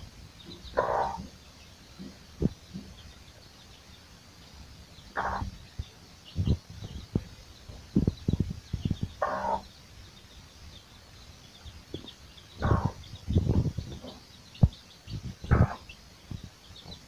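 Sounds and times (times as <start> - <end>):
chicks peeping faintly: 0.0 - 17.0
hen clucking: 0.4 - 1.4, 5.0 - 5.8, 6.4 - 9.7, 11.9 - 17.0.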